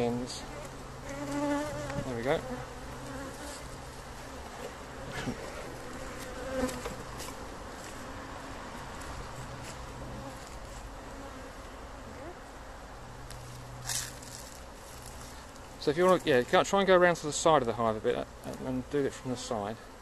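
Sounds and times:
bees buzzing: 0.3 - 12.5.

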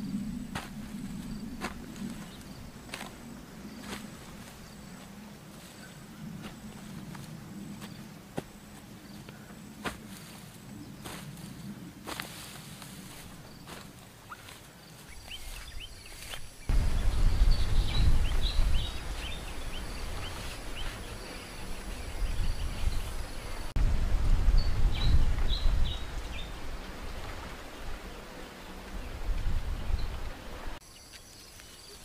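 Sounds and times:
small birds chirping: 13.0 - 23.8
wind buffeting the microphone: 15.2 - 30.8.

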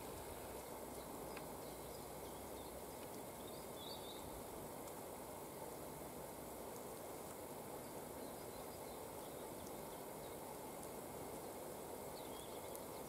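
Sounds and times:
faint background hiss: 0.0 - 13.0
faint high bird chirp: 1.0 - 4.3, 12.2 - 13.0.

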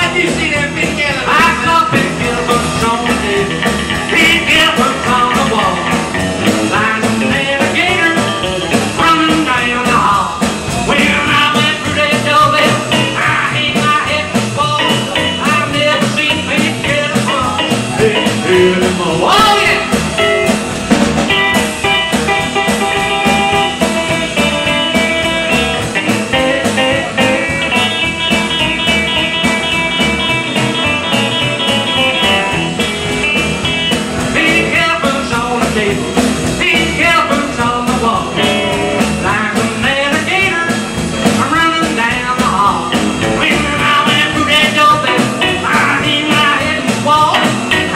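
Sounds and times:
lead vocal singing: 0.0 - 20.2, 34.2 - 47.9
acoustic guitar: 0.0 - 47.9
drums: 0.0 - 47.9
electric guitar: 0.0 - 47.9
upright bass: 0.0 - 47.9.

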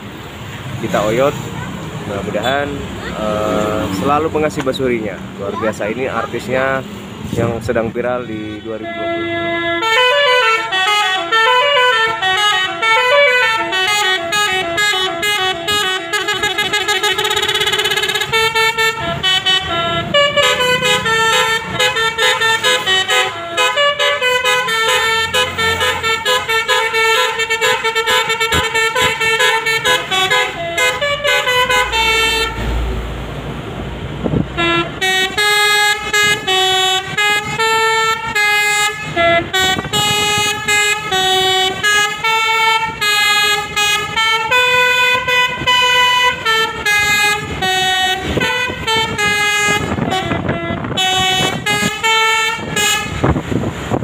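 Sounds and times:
low rumble and road noise: 0.0 - 54.0
multi-tone air horn melody: 8.2 - 32.7, 34.6 - 53.6.

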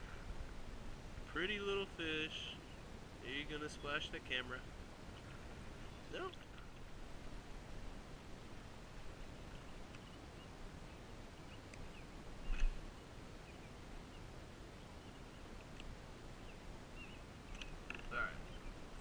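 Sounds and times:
faint bird chirps: 16.4 - 19.0.

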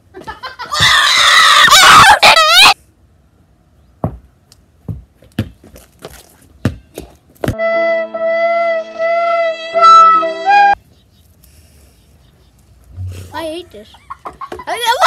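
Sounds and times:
loud shrill cry: 0.7 - 2.8
basketball bouncing on brick paving: 4.0 - 7.6.

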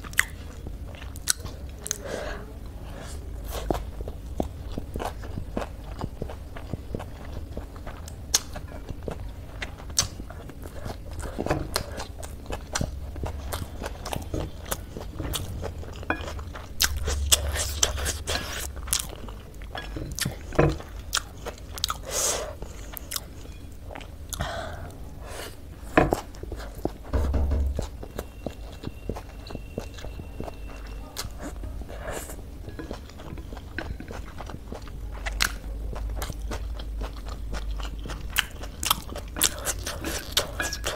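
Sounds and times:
chewing and slurping noodles: 3.2 - 24.5, 28.0 - 40.9.

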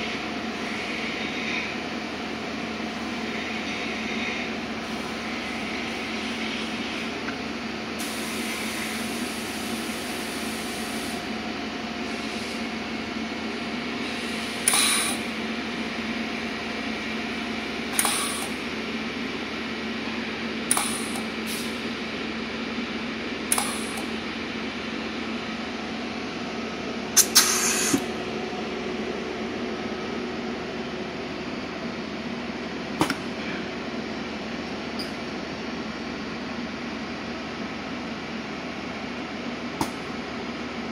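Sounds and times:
steady machine hum: 0.0 - 40.9
spot welder hissing bursts: 8.0 - 11.2, 14.0 - 15.3, 17.9 - 18.6, 20.7 - 21.8, 23.5 - 24.1, 27.2 - 28.1.

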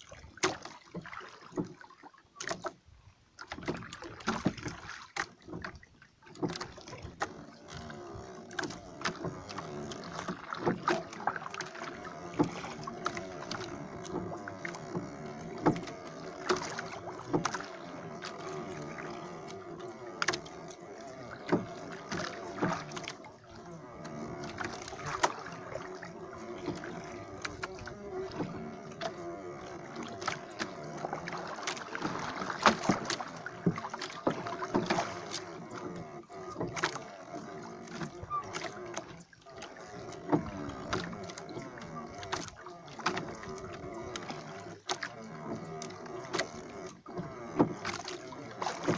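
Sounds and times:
water sounds: 0.0 - 48.9
knocks on wooden boat: 5.4 - 23.2, 26.4 - 37.0, 40.1 - 48.9.

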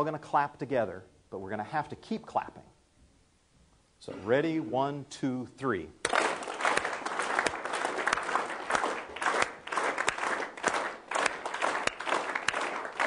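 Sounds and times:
audience clapping: 6.0 - 13.0.

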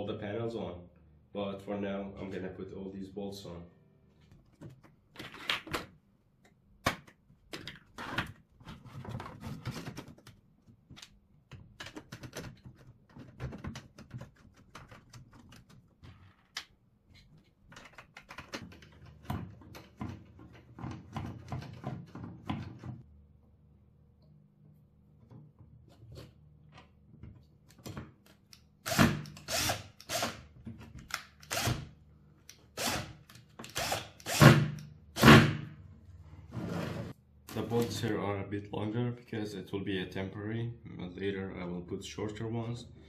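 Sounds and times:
plastic parts clicking and knocking: 4.5 - 23.0.

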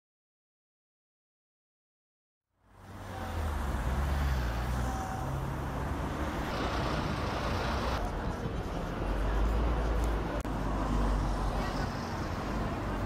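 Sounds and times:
city street traffic: 2.5 - 13.0
bus diesel engine driving past: 2.6 - 13.0.

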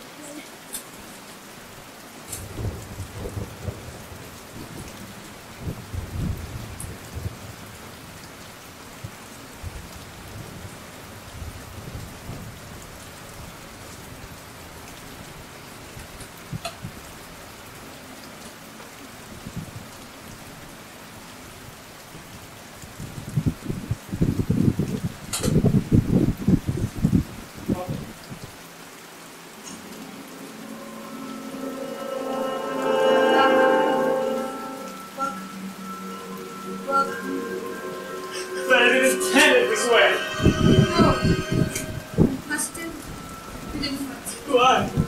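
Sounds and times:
steady rain: 0.0 - 45.0
thunder rumbling: 2.3 - 8.1.

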